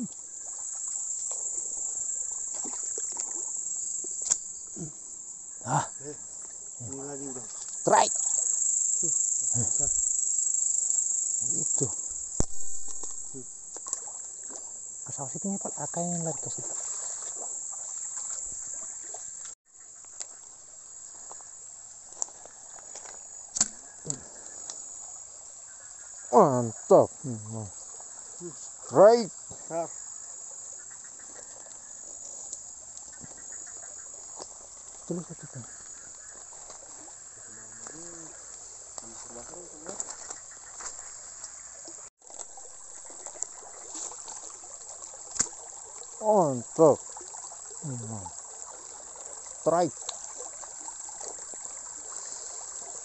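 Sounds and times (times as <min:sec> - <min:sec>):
crickets chirring: 0:00.0 - 0:53.0
night insects: 0:00.0 - 0:53.0
small water splashes: 0:00.0 - 0:53.0
stream trickling: 0:00.0 - 0:53.0.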